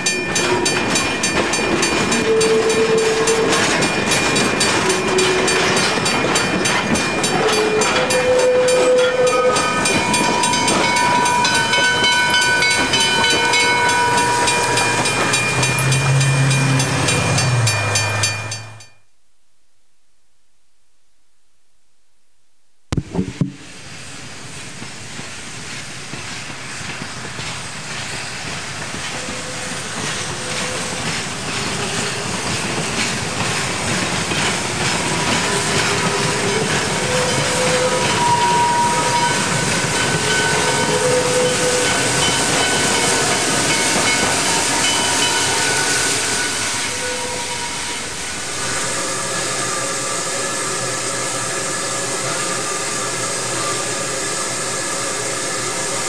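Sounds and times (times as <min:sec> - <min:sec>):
train rolling on rails: 0:00.0 - 0:19.0, 0:23.0 - 0:56.0
sharp knocks: 0:23.0 - 0:23.6.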